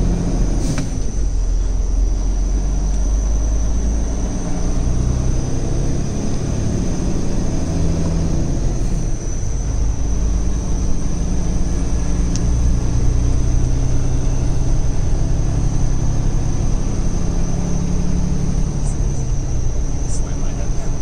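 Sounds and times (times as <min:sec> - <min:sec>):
truck diesel engine hum: 0:00.0 - 0:21.0
faint high whine: 0:17.3 - 0:21.0.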